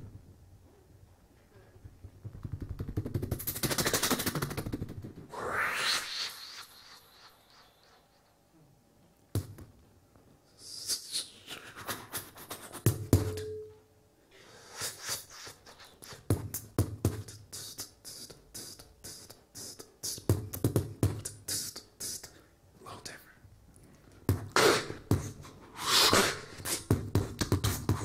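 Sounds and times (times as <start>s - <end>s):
beatboxing into microphone: 2.3s - 8.0s, 10.6s - 13.4s, 14.6s - 22.4s, 24.3s - 28.0s.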